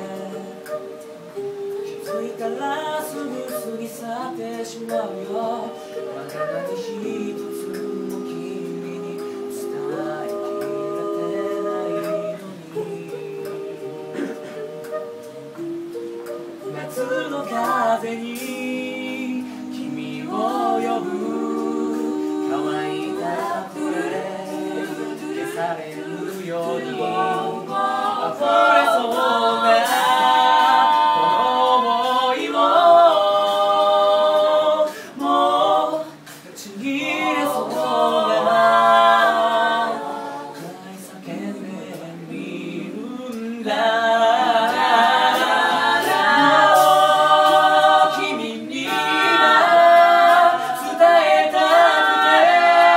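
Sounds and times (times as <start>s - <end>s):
group singing a cappella: 0.0s - 52.9s.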